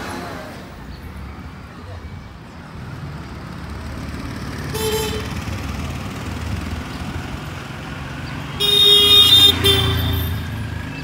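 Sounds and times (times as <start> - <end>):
street traffic: 0.0 - 11.0
car horn: 4.7 - 5.4, 8.6 - 10.4.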